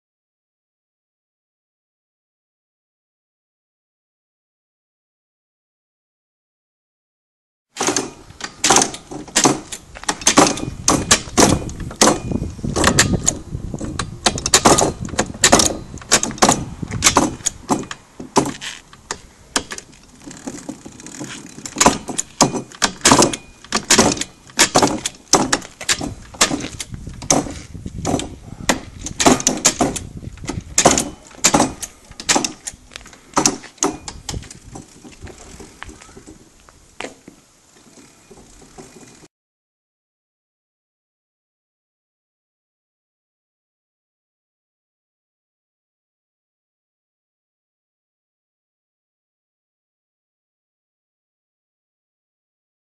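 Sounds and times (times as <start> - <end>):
shift paddles clicking and clunking: 7.8 - 39.2.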